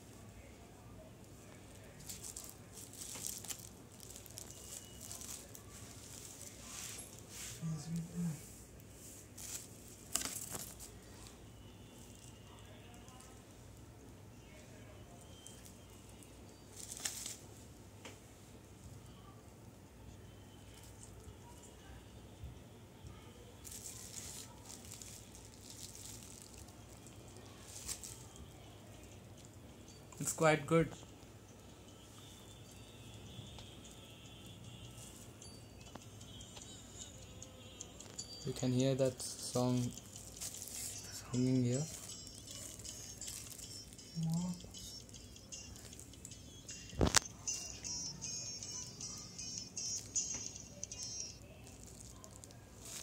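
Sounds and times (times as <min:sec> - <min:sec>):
low room hiss: 0:00.0 - 0:53.0
plastic packaging crinkling: 0:01.7 - 0:08.1, 0:09.2 - 0:11.2, 0:16.7 - 0:17.4, 0:23.6 - 0:28.4, 0:39.7 - 0:44.2, 0:47.0 - 0:47.3, 0:49.9 - 0:53.0
earbud cable rustling: 0:01.8 - 0:08.1, 0:09.1 - 0:11.0, 0:51.7 - 0:53.0.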